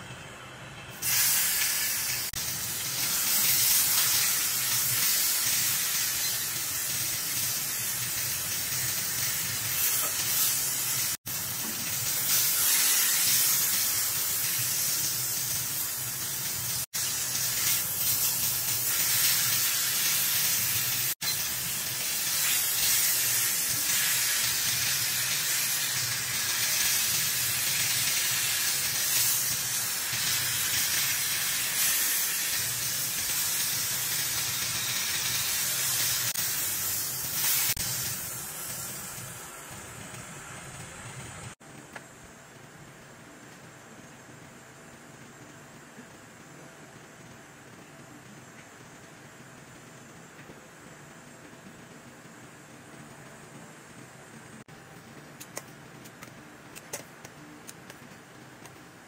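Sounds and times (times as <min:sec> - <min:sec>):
meat sizzling in a skillet: 0:01.0 - 0:39.9.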